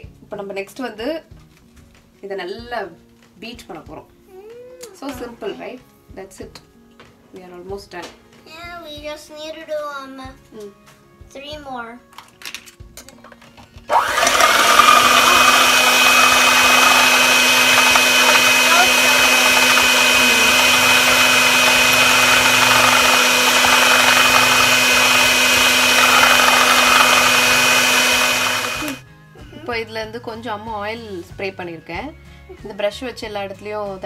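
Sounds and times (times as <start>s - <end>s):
electric mixer running: 13.9s - 29.0s.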